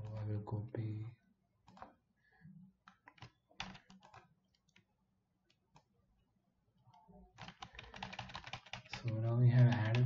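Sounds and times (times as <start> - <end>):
keyboard keys tapping: 1.6 - 2.0, 2.8 - 4.9, 6.9 - 10.0.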